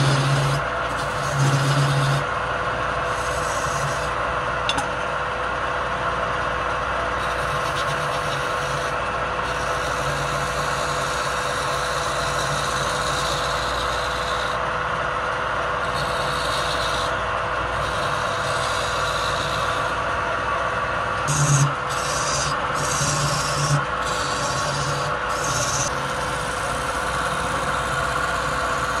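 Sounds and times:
chisel scraping spinning wood: 0.0 - 4.2, 7.0 - 14.7, 15.5 - 29.0
wood lathe humming: 0.0 - 29.0.

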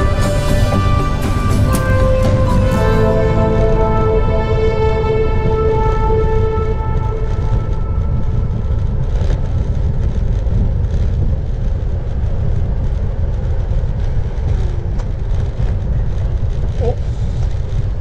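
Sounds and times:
background music: 0.0 - 8.5
wind buffeting microphone: 0.0 - 18.0.

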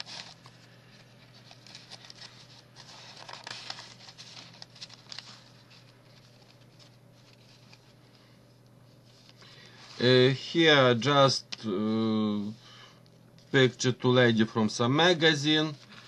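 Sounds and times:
paper rustling: 0.0 - 10.4.

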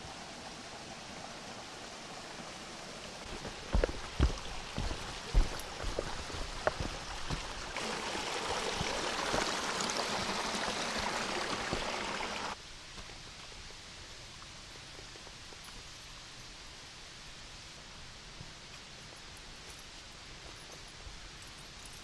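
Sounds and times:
stream rushing over rocks: 0.0 - 13.7
faint steady background hiss: 12.4 - 22.0.

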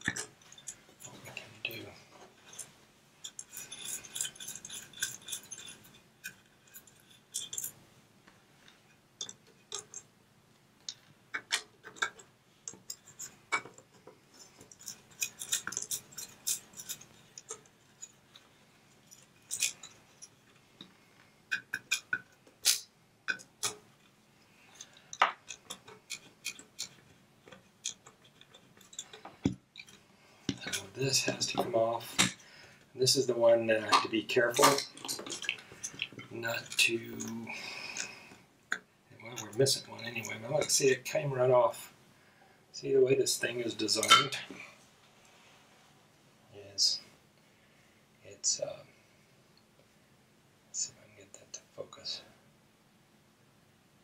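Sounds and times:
small metallic clinks: 0.0 - 1.8, 2.4 - 7.8, 10.8 - 32.5, 33.9 - 40.9.

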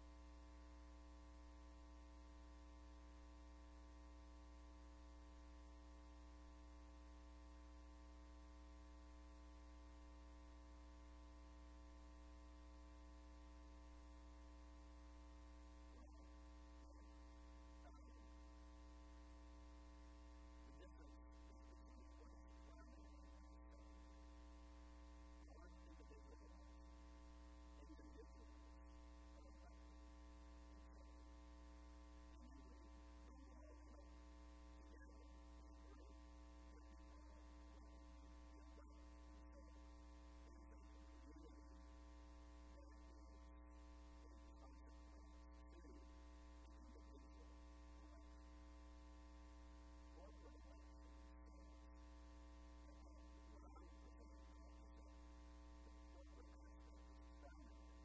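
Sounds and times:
electrical mains hum: 0.0 - 58.0
faint voice: 17.8 - 18.3, 19.5 - 31.2, 31.8 - 58.0.

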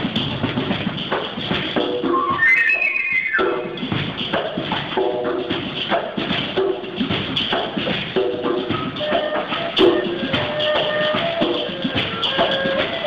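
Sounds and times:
shaken rattles: 0.0 - 13.0
tapped hand percussion: 0.0 - 13.0
bamboo flute melody: 1.9 - 3.9, 8.1 - 13.0.

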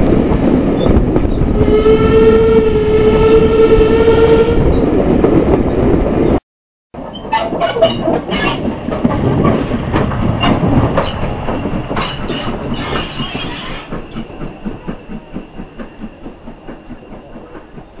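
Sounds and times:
steam locomotive exhaust beats: 7.2 - 18.0
steam hissing: 11.0 - 18.0.

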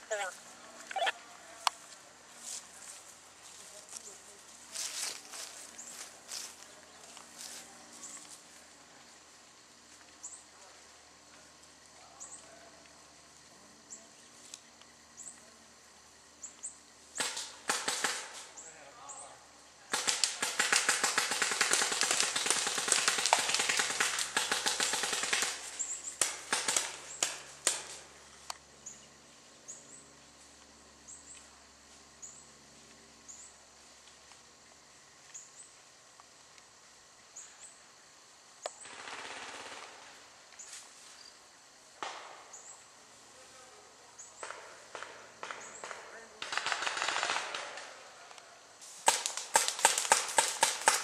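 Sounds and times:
paintball markers firing: 17.2 - 18.5, 19.9 - 28.0, 44.4 - 47.9, 49.0 - 51.0.

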